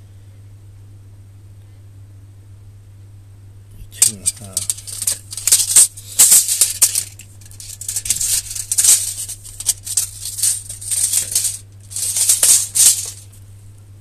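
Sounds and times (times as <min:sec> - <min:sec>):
spanner clicking and rattling: 0:04.0 - 0:13.2.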